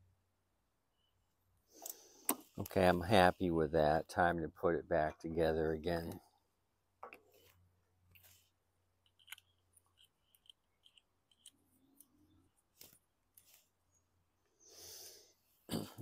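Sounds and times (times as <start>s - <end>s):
small metal parts clicking: 9.0s - 12.2s.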